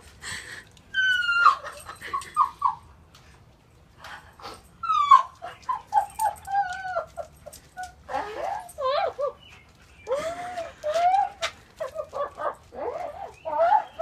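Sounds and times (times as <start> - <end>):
dog whining: 0.9 - 2.8, 4.8 - 14.0.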